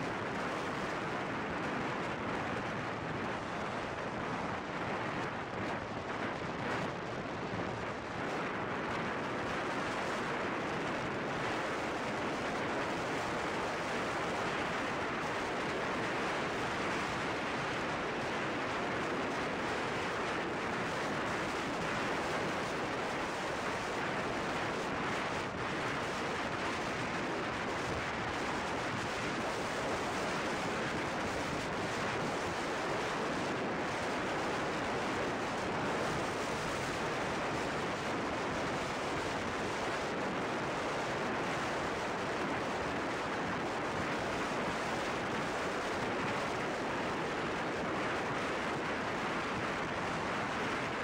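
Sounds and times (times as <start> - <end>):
wind rushing over microphone: 0.0 - 51.0.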